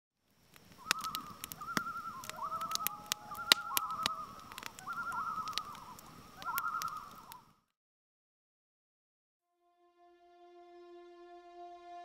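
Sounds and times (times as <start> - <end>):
sharp crackling clicks: 0.2 - 7.5
warbling animal calls: 0.8 - 7.5.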